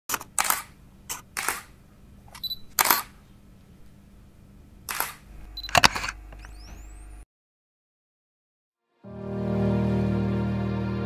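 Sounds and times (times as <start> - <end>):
camera shutter firing: 0.1 - 1.8, 2.4 - 3.2, 4.9 - 6.2.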